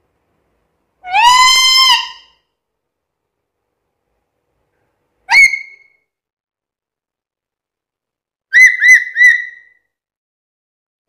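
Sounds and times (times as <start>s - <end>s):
parrot whistled calls: 1.0s - 2.4s, 5.3s - 6.0s, 8.5s - 9.9s.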